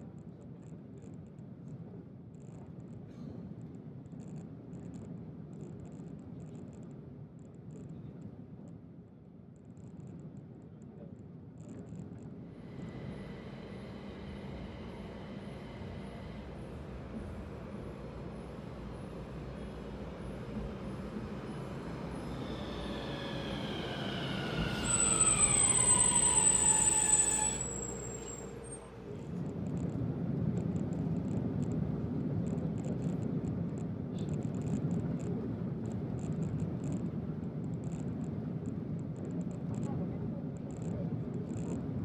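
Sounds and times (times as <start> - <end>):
high wheel squeal: 20.8 - 29.0.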